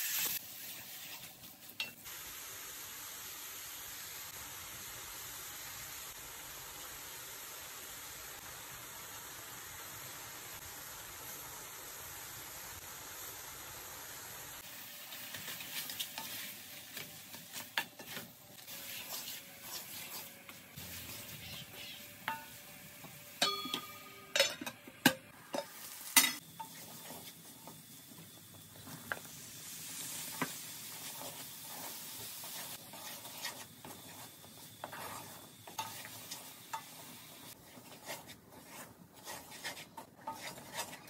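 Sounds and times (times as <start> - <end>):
frying sizzle: 0.0 - 41.0
wooden spoon scraping a pan: 15.2 - 24.2, 26.6 - 27.8, 30.1 - 41.0
metallic knocks on a pan: 23.4 - 25.7.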